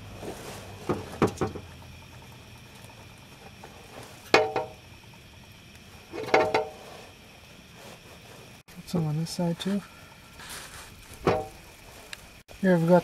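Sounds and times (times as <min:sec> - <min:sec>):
low steady hiss: 0:02.4 - 0:13.0
hand scraping and knocking pipe: 0:03.6 - 0:04.8, 0:06.1 - 0:08.6.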